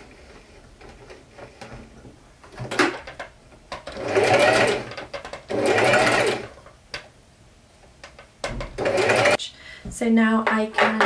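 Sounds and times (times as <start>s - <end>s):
electric sewing machine stitching: 3.8s - 6.6s, 8.8s - 9.4s.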